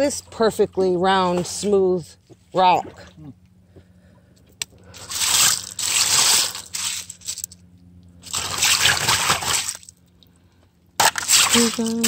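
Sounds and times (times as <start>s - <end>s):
gravel raked across mesh screen: 5.0s - 7.5s.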